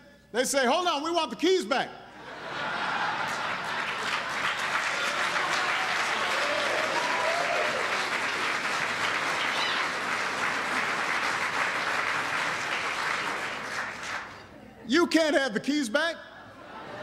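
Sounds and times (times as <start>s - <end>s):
audience applauding: 3.0s - 14.5s.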